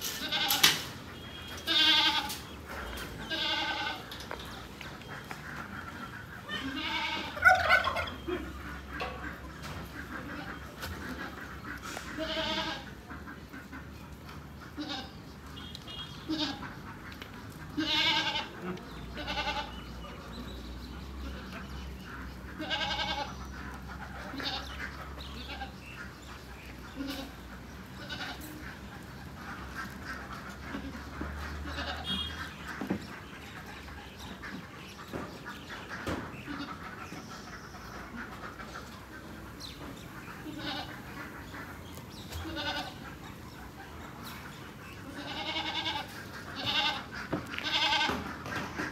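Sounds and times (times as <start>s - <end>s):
goats bleating: 0.1s - 2.5s, 3.2s - 4.3s, 6.4s - 13.0s, 14.7s - 15.2s, 16.2s - 16.8s, 17.7s - 19.9s, 22.5s - 23.4s, 24.2s - 25.8s, 26.9s - 28.6s, 29.8s - 32.5s, 40.4s - 41.1s, 42.3s - 43.2s, 45.0s - 48.5s.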